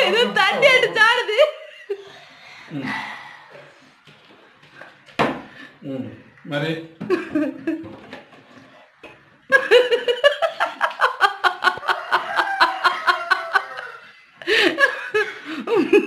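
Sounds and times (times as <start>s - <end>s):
people laughing hard: 9.5s - 16.0s.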